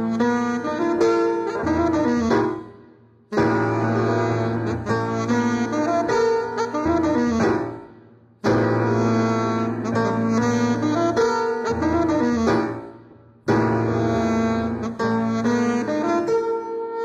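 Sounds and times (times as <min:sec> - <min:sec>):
piano: 0:00.0 - 0:17.0
saxophone phrases: 0:03.4 - 0:07.5, 0:08.9 - 0:12.7, 0:13.9 - 0:16.5.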